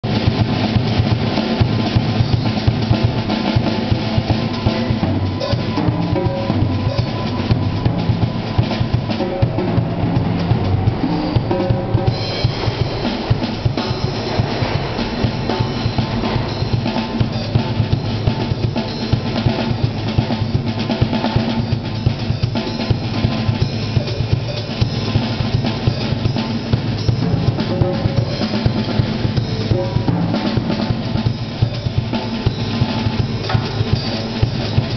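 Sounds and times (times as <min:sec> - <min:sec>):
drum kit playing fast groove: 0:00.0 - 0:34.9.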